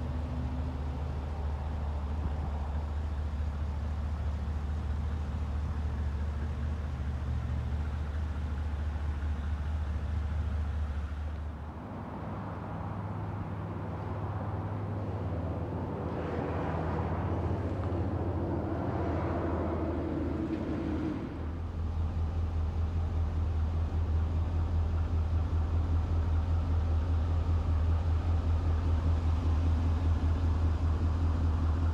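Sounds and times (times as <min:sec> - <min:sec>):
truck engine idling: 0:17.0 - 0:31.9.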